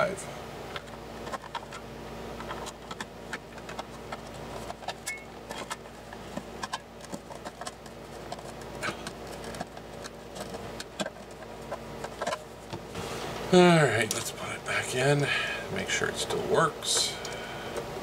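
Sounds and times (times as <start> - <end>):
plastic parts clicking and knocking: 2.4 - 12.8.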